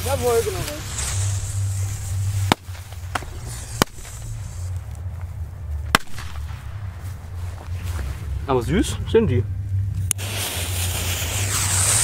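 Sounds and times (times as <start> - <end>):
firecrackers banging: 0.0 - 5.0, 5.8 - 7.8, 10.0 - 12.0.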